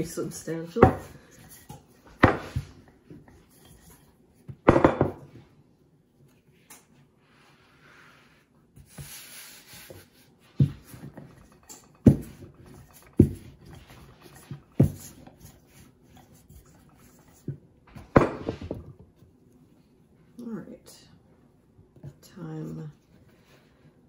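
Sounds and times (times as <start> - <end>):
rolling pin rubbing on dough: 7.2 - 17.7.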